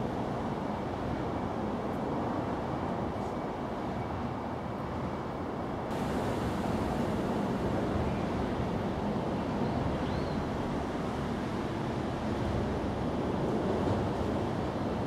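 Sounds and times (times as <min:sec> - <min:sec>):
faint high chirp: 0:09.6 - 0:10.4.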